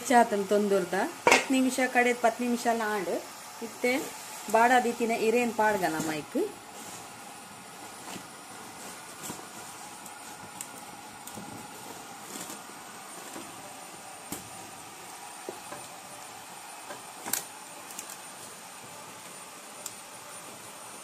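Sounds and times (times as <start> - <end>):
banana leaves rustling and crackling: 4.0 - 20.0.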